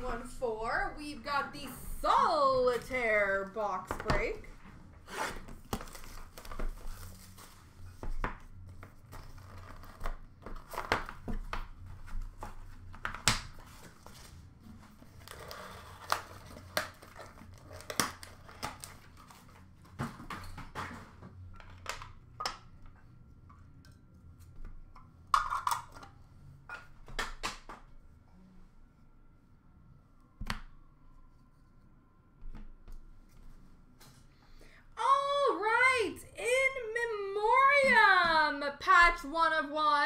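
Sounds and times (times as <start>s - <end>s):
cardboard and wrappers crinkling: 5.5s - 8.2s, 13.6s - 20.2s.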